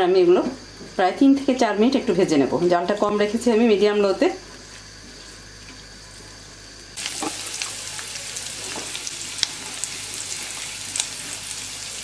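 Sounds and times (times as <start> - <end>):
onion and garlic sizzling in oil: 6.6 - 12.0.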